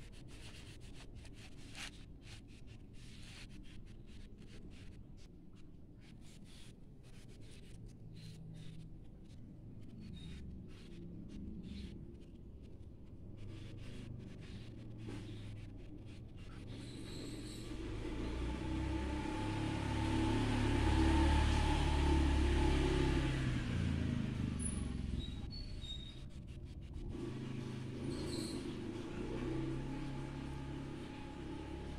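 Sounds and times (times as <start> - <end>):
pastels scratching on paper: 0.0 - 18.6, 25.2 - 31.9
vehicle engine rumble: 6.0 - 31.9.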